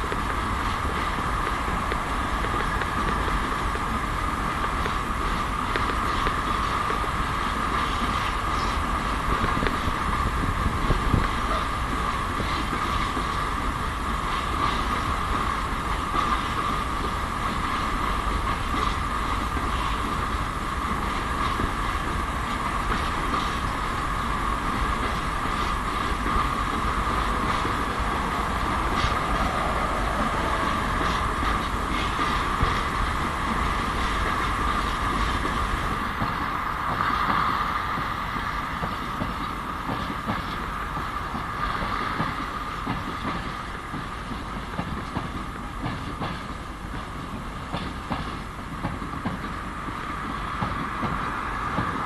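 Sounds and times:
diesel locomotive engine roar: 0.0s - 52.0s
high whine: 26.5s - 33.4s.

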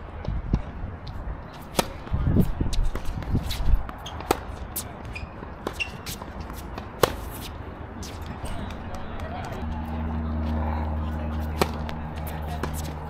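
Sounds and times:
racket striking tennis ball: 1.6s - 2.1s, 2.7s - 8.6s, 11.4s - 13.0s
tennis ball bouncing: 1.6s - 9.6s, 11.4s - 13.0s.

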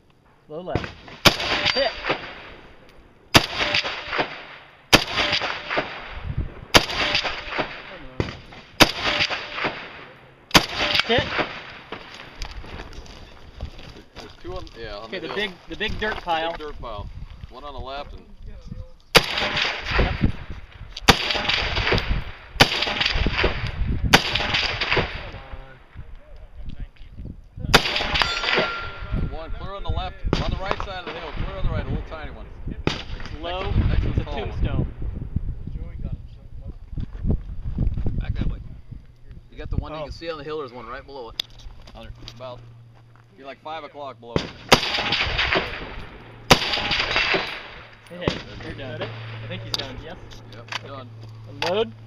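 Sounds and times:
gunshot echoes: 0.8s - 2.6s, 3.3s - 12.0s, 19.2s - 20.2s, 21.1s - 25.4s, 27.7s - 29.1s, 44.4s - 49.6s
rifle shots: 0.8s - 2.7s, 3.3s - 12.2s, 19.1s - 20.3s, 21.0s - 25.4s, 27.7s - 29.1s, 32.8s - 34.0s, 44.4s - 50.0s.

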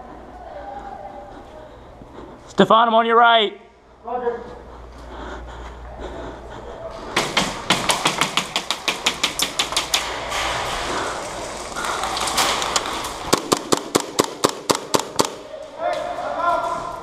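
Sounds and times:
steady background noise: 0.0s - 17.0s
airsoft guns firing: 7.2s - 16.1s.

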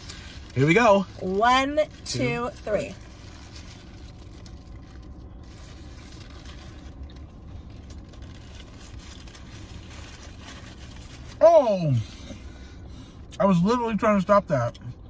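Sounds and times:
paper wrappers rustling: 0.0s - 11.4s
faint small crunches: 3.0s - 11.4s.

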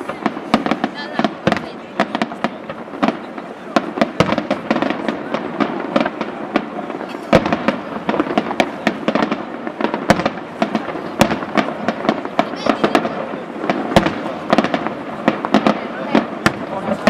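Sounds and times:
fireworks bangs and crackles: 0.0s - 17.0s
sharp firework reports: 0.0s - 17.0s.

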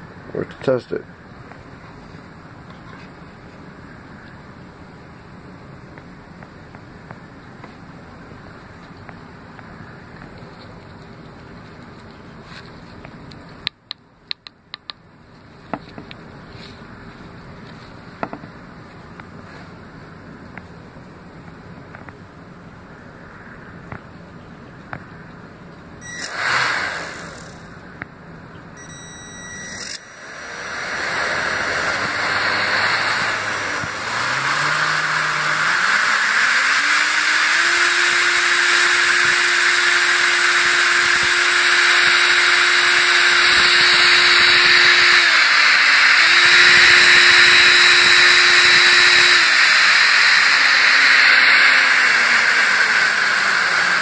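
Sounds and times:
electric motor whine: 26.0s - 28.0s, 28.8s - 54.0s
rushing air hiss: 26.3s - 27.8s.

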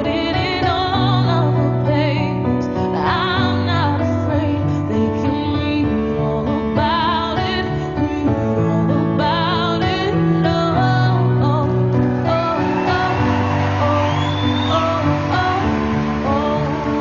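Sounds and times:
woman singing with vibrato: 0.0s - 17.0s.

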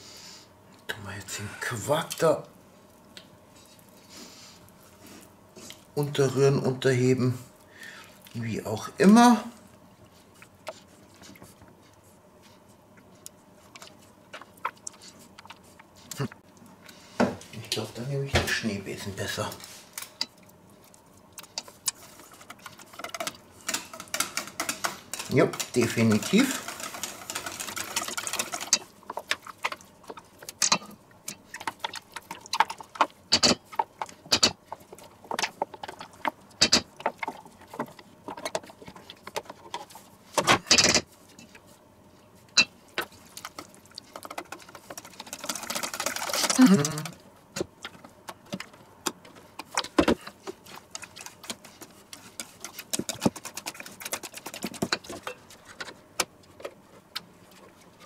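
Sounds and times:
whisk scraping metal bowl: 21.5s - 32.9s, 50.5s - 55.4s.

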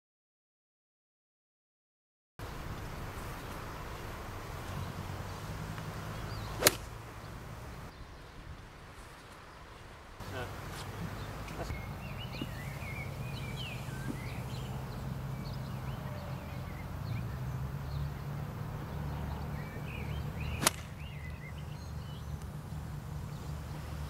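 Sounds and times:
small birds chirping: 2.4s - 24.0s
golf club striking a ball: 5.8s - 7.8s, 20.4s - 21.2s.

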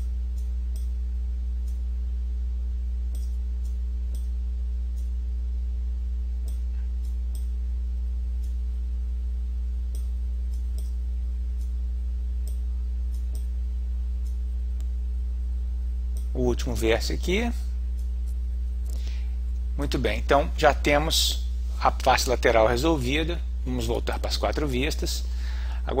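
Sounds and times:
low electrical hum: 0.0s - 26.0s
computer mouse clicks: 3.1s - 4.3s, 12.4s - 13.5s.

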